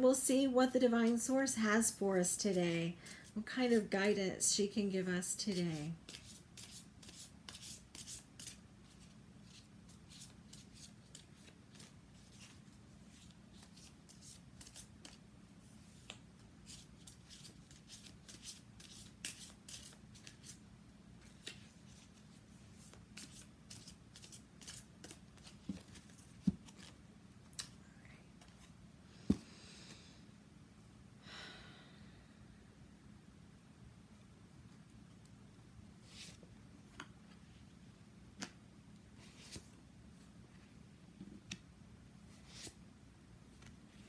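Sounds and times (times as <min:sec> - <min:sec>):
low steady hum: 0:00.0 - 0:44.0
cards being shuffled: 0:06.0 - 0:15.2, 0:15.8 - 0:20.6, 0:21.2 - 0:27.0, 0:39.2 - 0:39.7, 0:42.3 - 0:42.8.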